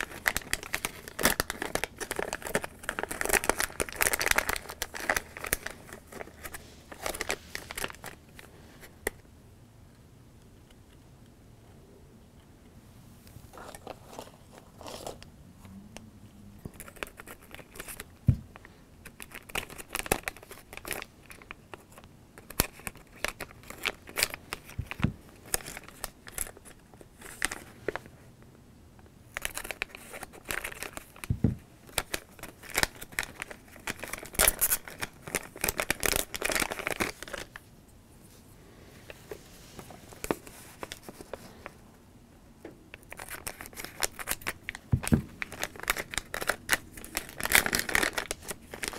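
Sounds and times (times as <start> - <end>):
plastic packet crinkling: 0.0 - 9.2, 16.6 - 28.0, 29.3 - 37.6, 43.0 - 48.9.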